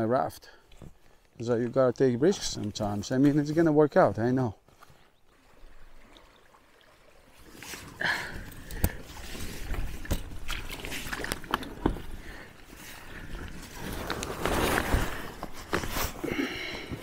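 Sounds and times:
loud rustle: 13.6s - 16.2s.

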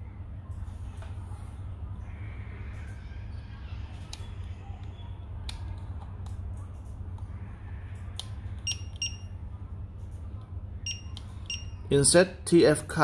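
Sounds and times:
steady low hum: 0.0s - 13.0s
short electronic beeps: 8.6s - 9.3s, 10.8s - 11.8s.

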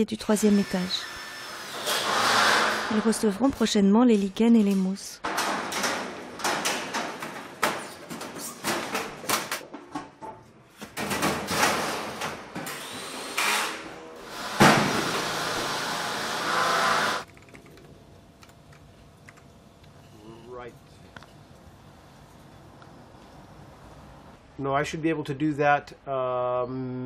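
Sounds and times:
power drill running: 0.4s - 3.0s, 12.7s - 17.3s
metal panels knocking and clattering: 5.2s - 12.6s.

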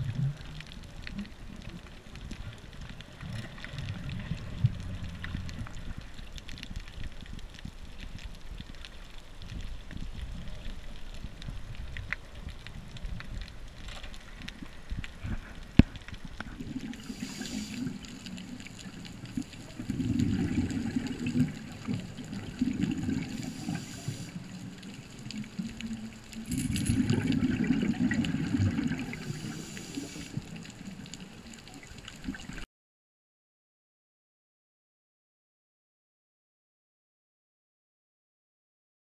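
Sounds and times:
exhaled bubbles: 0.0s - 6.6s, 16.1s - 32.6s
regulator inhale hiss: 16.9s - 18.6s, 23.1s - 24.6s, 29.1s - 30.6s.

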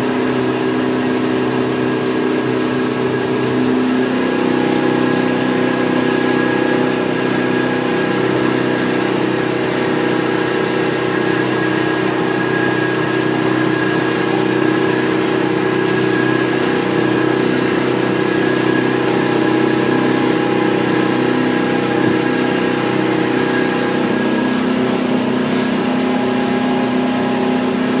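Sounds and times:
boat engine humming: 0.0s - 28.0s.

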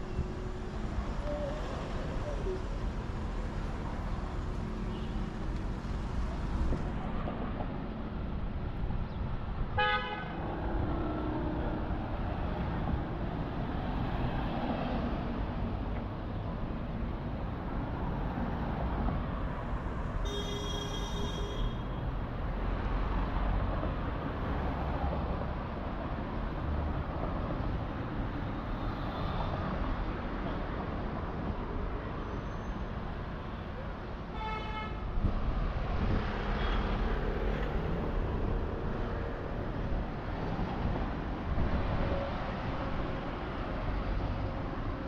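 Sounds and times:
street traffic rumble: 0.0s - 45.0s
car horn toot: 20.2s - 21.9s.

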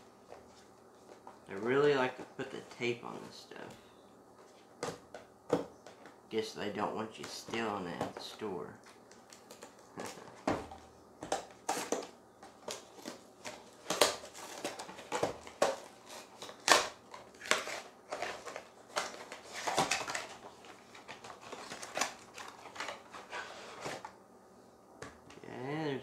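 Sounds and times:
cardboard crackling and crumpling: 11.6s - 24.1s.

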